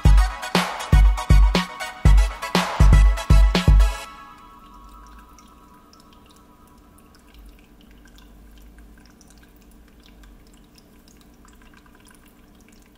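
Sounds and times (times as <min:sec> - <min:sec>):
water dripping and trickling: 0:04.0 - 0:12.9.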